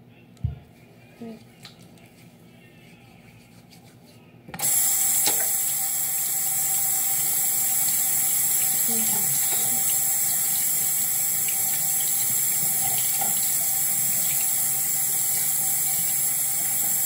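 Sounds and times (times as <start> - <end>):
water running from faucet: 4.6 - 17.0.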